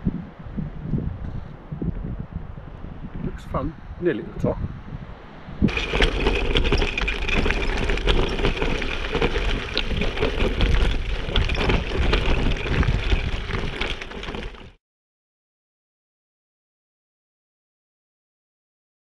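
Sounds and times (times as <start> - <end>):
bike rattling: 5.7 - 14.8
bike tyres crunching on gravel: 5.7 - 14.8.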